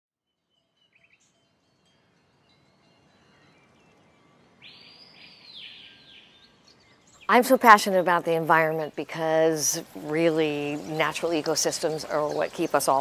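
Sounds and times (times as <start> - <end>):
distant bird chirps: 0.3 - 13.0
bird trilling call: 4.6 - 7.7.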